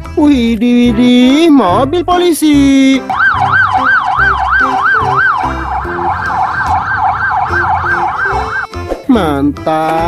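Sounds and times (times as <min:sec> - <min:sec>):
second siren: 0:03.0 - 0:08.7
police siren wailing: 0:03.0 - 0:08.8.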